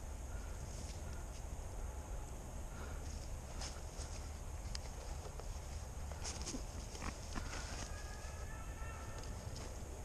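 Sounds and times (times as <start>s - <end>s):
steady low rumble: 0.0s - 10.0s
faint rustles and ticks: 2.2s - 8.4s.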